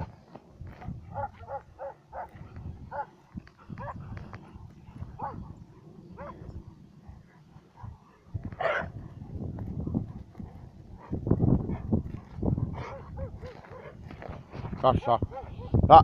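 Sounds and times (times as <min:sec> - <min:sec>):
dog barking: 0:01.1 - 0:03.1, 0:03.7 - 0:04.0, 0:05.2 - 0:05.5, 0:06.2 - 0:06.4, 0:07.3 - 0:08.0, 0:08.6 - 0:09.2, 0:11.0 - 0:14.0, 0:15.2 - 0:15.8.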